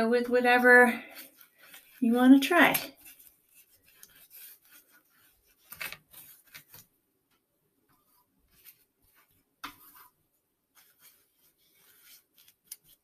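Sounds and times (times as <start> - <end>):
paintbrush scrubbing on paper: 0.5 - 6.6, 8.0 - 13.0.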